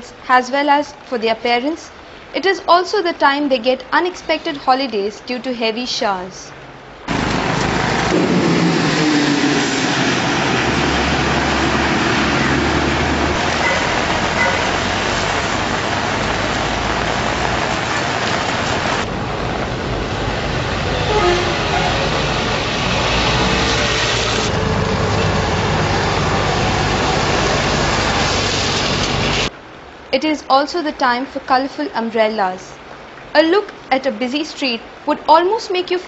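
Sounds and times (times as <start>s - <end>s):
heavy rain hiss: 0.0s - 36.0s
vehicle engines: 6.8s - 29.5s
tyres swishing through water: 7.1s - 29.5s.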